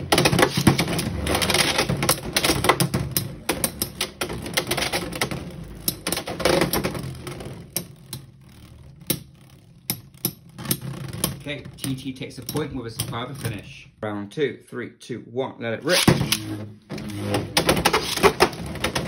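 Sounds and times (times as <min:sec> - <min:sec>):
whir of spinning tops: 0:00.0 - 0:13.2.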